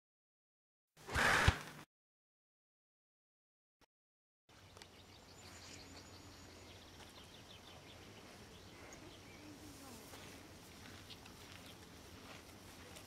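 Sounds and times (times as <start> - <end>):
small birds chirping: 4.5 - 12.9.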